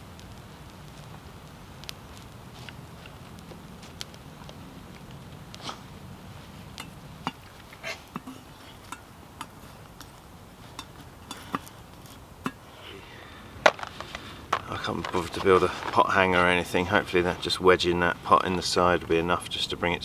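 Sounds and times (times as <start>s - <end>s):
dry twigs snapping: 0.0s - 5.9s, 13.5s - 16.5s.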